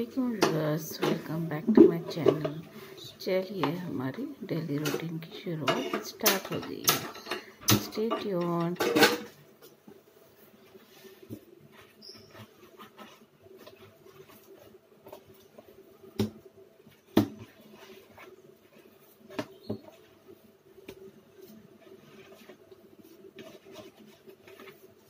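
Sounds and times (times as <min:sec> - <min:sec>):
faint steady hum: 0:00.0 - 0:25.0
hands kneading sticky dough: 0:07.8 - 0:25.0.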